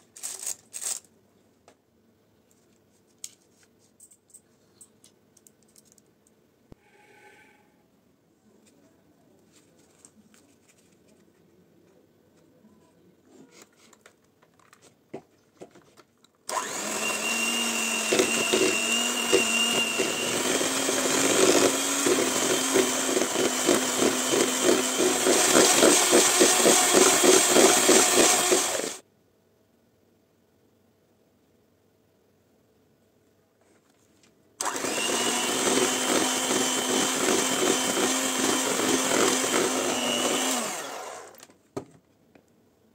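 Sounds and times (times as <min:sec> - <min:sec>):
electric hand mixer whining: 0:16.5 - 0:29.0, 0:34.6 - 0:41.4.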